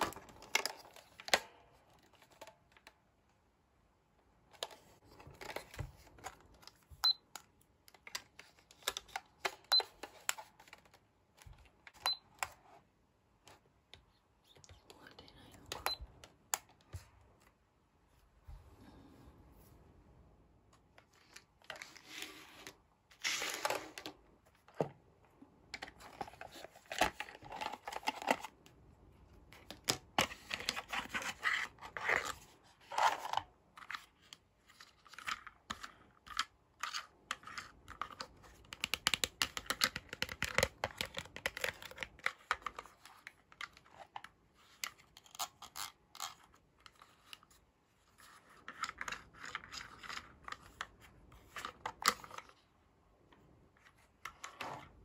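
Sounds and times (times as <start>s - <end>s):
plastic toy clicking and tapping: 38.6s - 42.7s.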